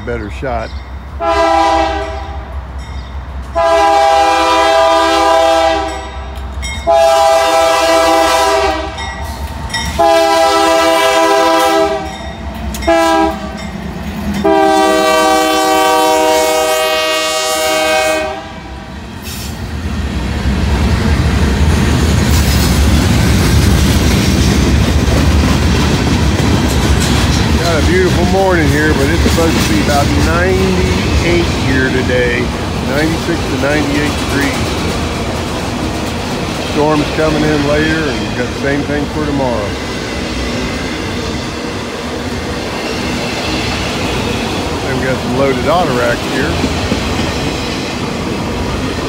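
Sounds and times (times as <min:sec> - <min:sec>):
freight cars rumbling on rails: 0:00.0 - 0:49.0
locomotive air horn blasts: 0:01.2 - 0:02.4, 0:03.6 - 0:06.0, 0:06.9 - 0:09.0, 0:10.0 - 0:12.2, 0:12.9 - 0:13.6, 0:14.4 - 0:18.7.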